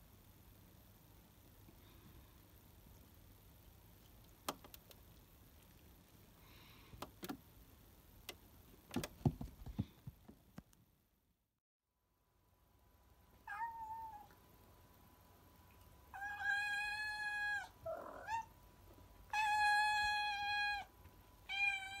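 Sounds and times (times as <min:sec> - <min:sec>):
cat meowing: 0:13.4 - 0:14.4, 0:16.2 - 0:18.5, 0:21.5 - 0:22.0.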